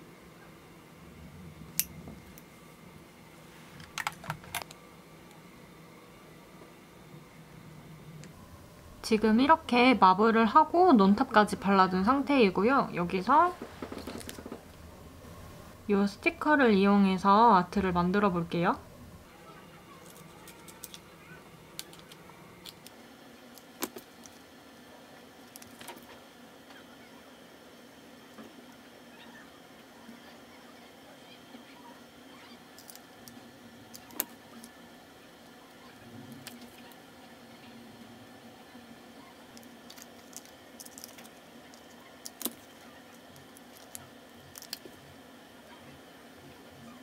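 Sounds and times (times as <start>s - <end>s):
faint steady hum: 0.0s - 47.0s
sticker sheet crinkling: 39.6s - 44.9s.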